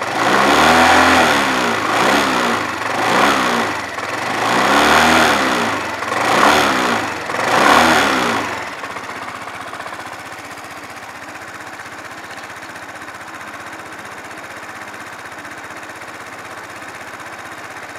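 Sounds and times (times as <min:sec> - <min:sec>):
scooter engine idling: 0:00.0 - 0:17.9.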